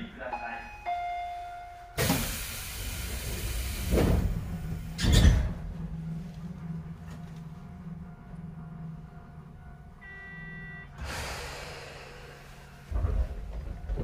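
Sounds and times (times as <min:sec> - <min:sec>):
low hum of standing train: 0:00.0 - 0:14.0
rush of air from doors: 0:02.0 - 0:05.8, 0:11.0 - 0:13.5
train doors thudding shut: 0:02.0 - 0:05.8.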